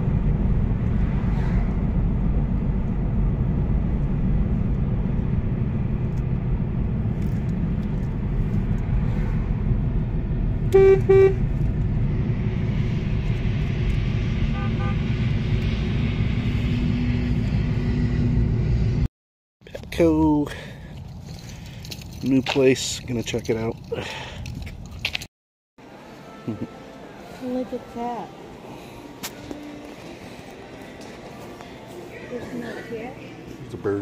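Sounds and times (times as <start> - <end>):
car road noise inside cabin: 0.0 - 19.1
car horn toots: 10.7 - 11.5, 14.5 - 15.2.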